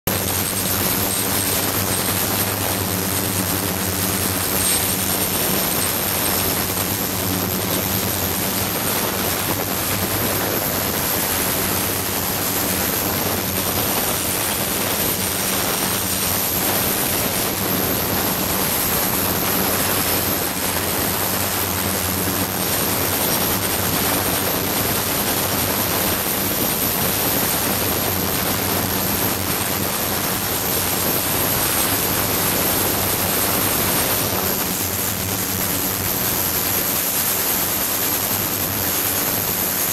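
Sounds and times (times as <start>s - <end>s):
thin high whine: 0.1s - 39.9s
ultrasonic cleaner hiss and hum: 0.1s - 39.9s.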